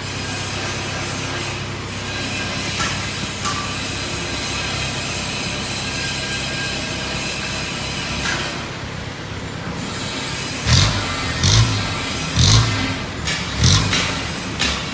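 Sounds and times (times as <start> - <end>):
diesel engine revving: 8.8 - 14.9.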